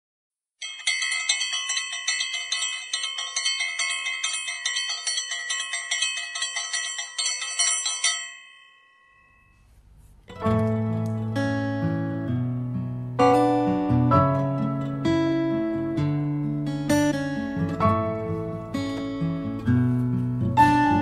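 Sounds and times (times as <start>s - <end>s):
bell-like chimes ringing: 0.6s - 9.6s.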